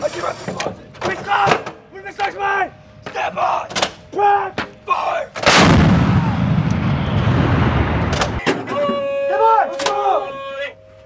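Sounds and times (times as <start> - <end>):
howitzer blast: 5.4 - 8.7
long low rumble: 5.6 - 8.4.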